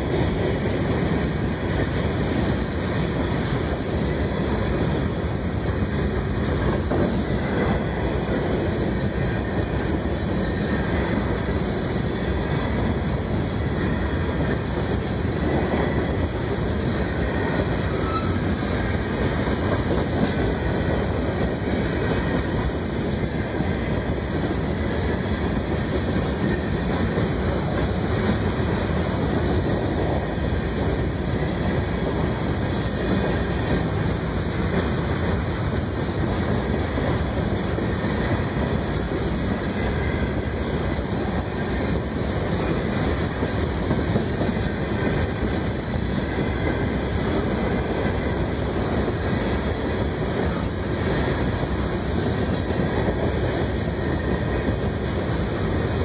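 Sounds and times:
freight train wheels rumbling on rails: 0.0s - 56.0s.

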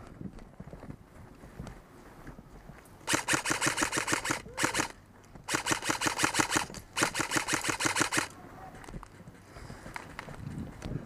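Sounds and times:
airsoft rifle firing bursts: 3.1s - 8.3s.

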